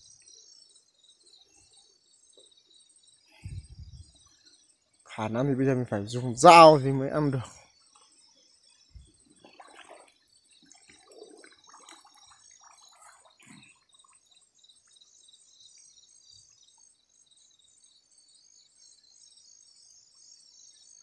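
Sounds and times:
night insects chirring: 0.0s - 21.0s
splashing in muddy water: 9.3s - 14.2s.

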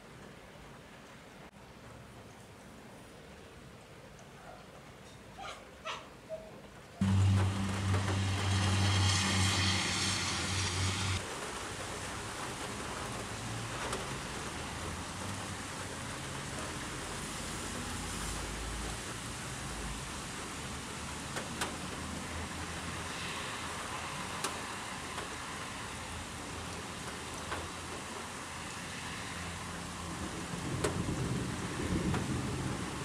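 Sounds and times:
steady rain: 0.0s - 5.4s, 6.1s - 33.0s
raindrops ticking on a surface: 6.6s - 33.0s
thunder rumble: 7.0s - 11.2s, 30.1s - 33.0s.

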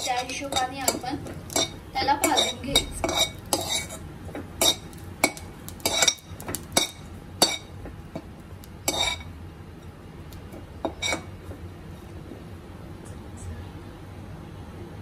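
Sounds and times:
spoon scraping a steel pan: 0.0s - 4.0s, 5.8s - 6.2s, 8.9s - 9.3s, 10.8s - 11.3s.

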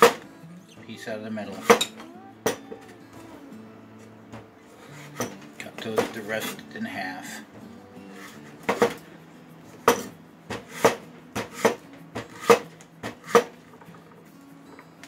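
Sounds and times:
knife chopping on wooden board: 8.6s - 9.0s, 9.8s - 13.6s.

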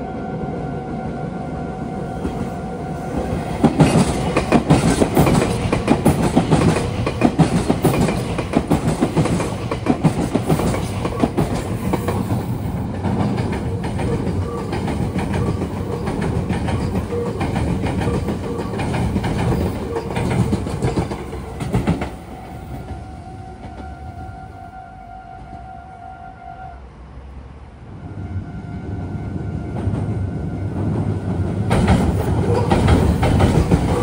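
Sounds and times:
electric train humming: 0.0s - 34.0s
wheels clattering over rail joints: 31.6s - 34.0s.

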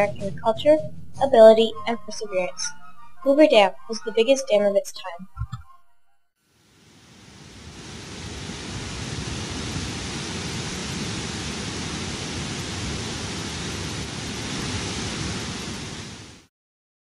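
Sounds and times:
steady rushing noise: 6.7s - 16.5s.

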